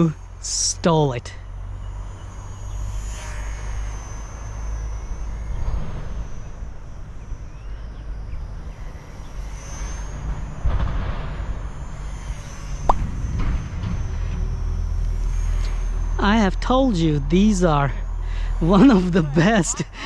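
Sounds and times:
model plane motor whining: 1.4 - 20.0
wind rumble on microphone: 10.0 - 17.4
wind buffet on microphone: 12.8 - 14.6.

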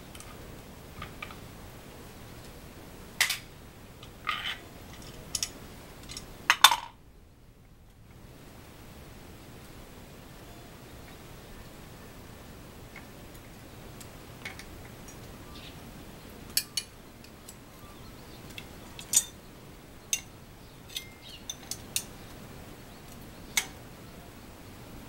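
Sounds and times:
spanner clinking on bicycle hub: 19.0 - 19.4, 20.9 - 22.1.

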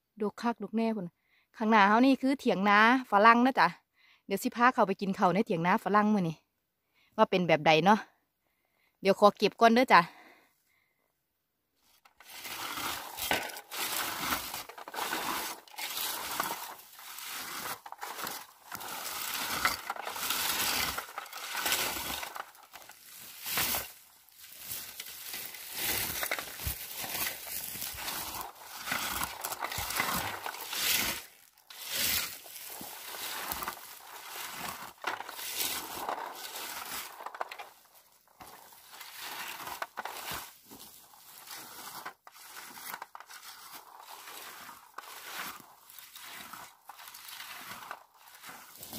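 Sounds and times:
leaves and twigs rustling: 12.1 - 48.9.

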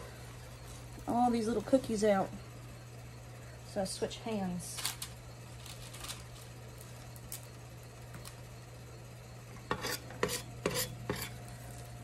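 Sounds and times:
utensil scraping a metal pot: 9.6 - 11.4.

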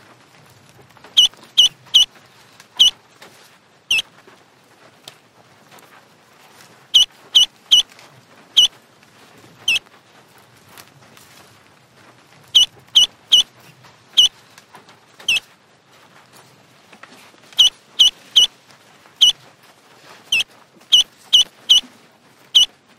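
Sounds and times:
ducklings peeping: 1.2 - 2.1, 2.8 - 3.0, 6.9 - 7.9, 9.6 - 9.8, 12.5 - 13.5, 14.1 - 14.3, 15.2 - 15.4, 17.6 - 18.5, 19.2 - 19.4, 20.3 - 21.9, 22.5 - 22.7.

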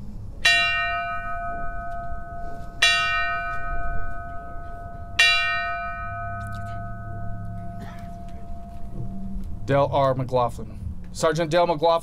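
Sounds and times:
bell tolling: 0.4 - 11.3.

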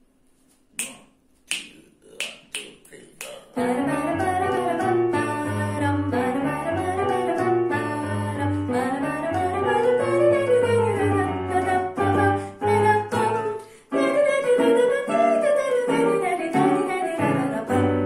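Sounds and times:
finger snaps: 0.5 - 3.6
electronic keyboard piano melody: 3.6 - 18.0.

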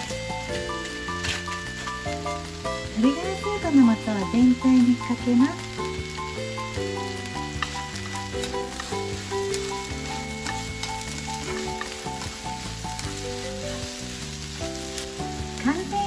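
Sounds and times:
food sizzling in a frying pan: 0.0 - 16.0
light background music: 0.0 - 16.0
chopsticks clicking on pan: 7.4 - 12.4.

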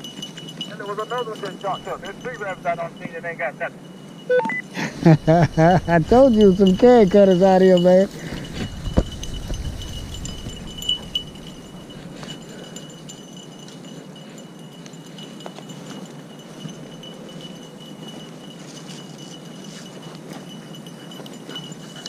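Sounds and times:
faint high-pitched ringing tone: 0.0 - 22.0
dry grass rustling underfoot: 5.0 - 22.0.

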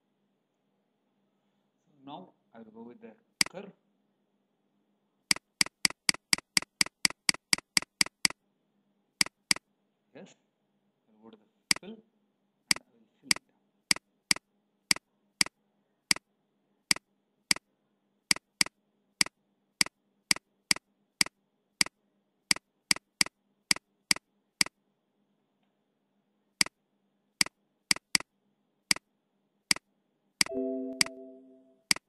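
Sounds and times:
computer mouse clicking: 5.3 - 8.4, 9.2 - 9.6, 18.3 - 24.8, 27.4 - 28.3
computer alert tone: 30.4 - 32.0.

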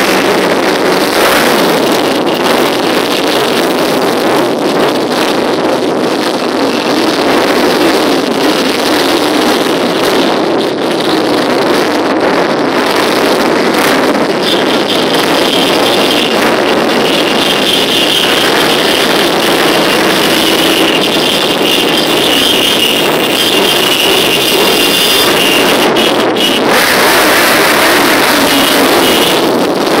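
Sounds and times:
steady high whine: 0.0 - 30.0
motorcycle engines passing: 6.4 - 30.0.

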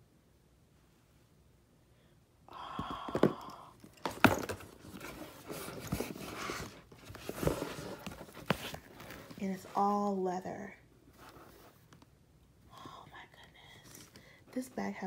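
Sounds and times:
leather bag rustling: 3.8 - 10.0.

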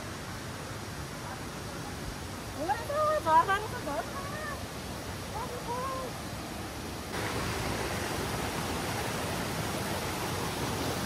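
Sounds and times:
waterfall roaring: 0.0 - 11.0.

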